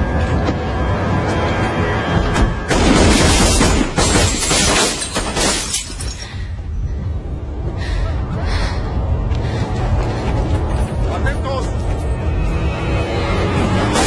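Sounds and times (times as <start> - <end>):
tense music drone: 0.0 - 14.0
glass shattering: 2.9 - 6.2.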